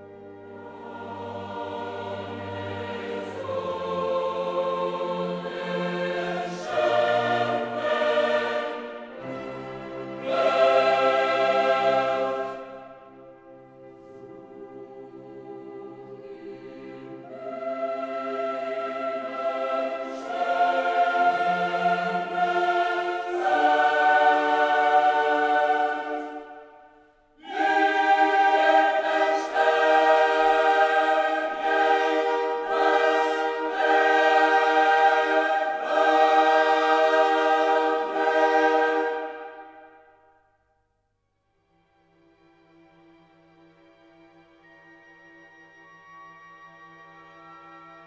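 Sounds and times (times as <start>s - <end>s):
choir singing held chords: 0.0s - 40.4s.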